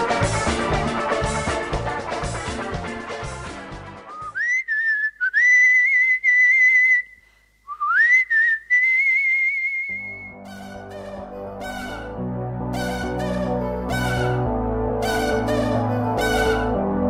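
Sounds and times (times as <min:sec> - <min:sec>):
instrumental music: 0:00.0 - 0:04.3, 0:10.0 - 0:17.0
whistled melody: 0:04.0 - 0:12.2, 0:12.8 - 0:16.8.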